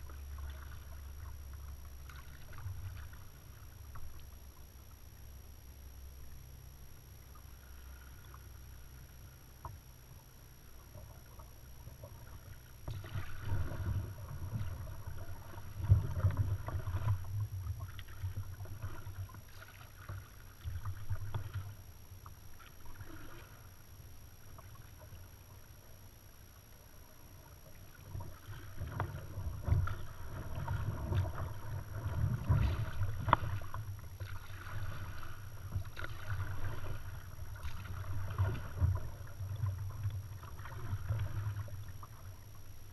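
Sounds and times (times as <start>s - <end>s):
paddle dipping in water: 0.0s - 4.6s, 10.7s - 23.8s, 26.6s - 42.9s.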